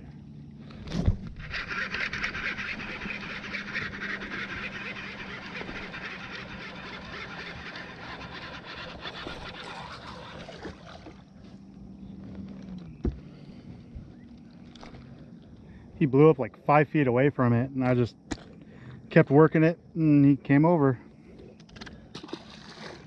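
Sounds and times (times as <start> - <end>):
electric trolling motor humming: 0.0 - 16.0.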